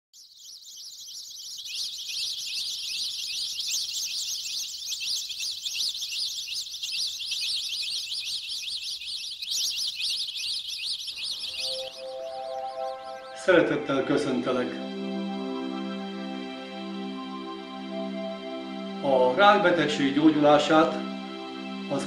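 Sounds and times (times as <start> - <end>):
high-pitched bird chirps: 0.2 - 13.6.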